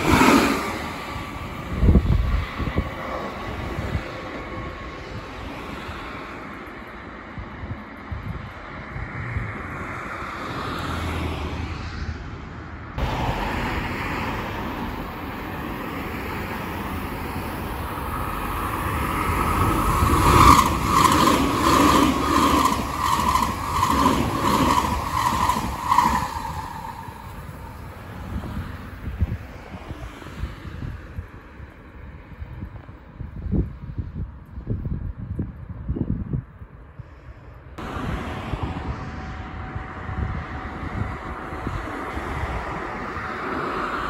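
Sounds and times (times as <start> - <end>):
passenger train passing: 0.0 - 32.3, 37.7 - 44.0
wheels clattering over rail joints: 18.3 - 27.3.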